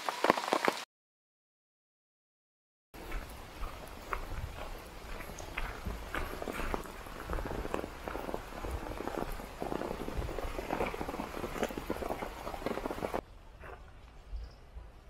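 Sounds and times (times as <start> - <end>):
footsteps on wet gravel: 0.0 - 0.8, 3.0 - 13.9.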